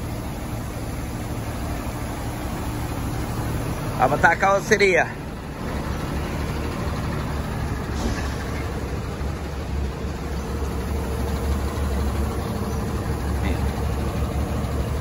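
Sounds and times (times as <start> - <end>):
truck diesel engine running: 0.0 - 15.0.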